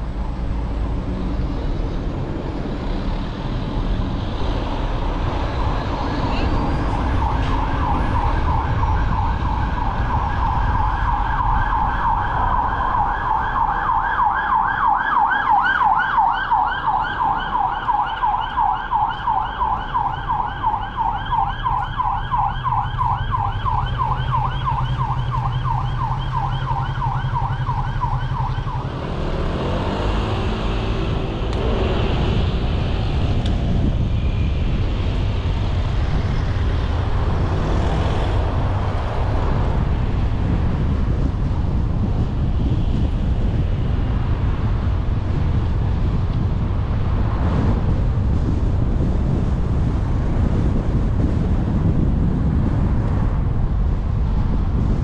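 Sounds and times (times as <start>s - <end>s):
road noise: 0.0s - 55.0s
siren yelping: 6.8s - 29.4s
car engine: 16.0s - 42.4s.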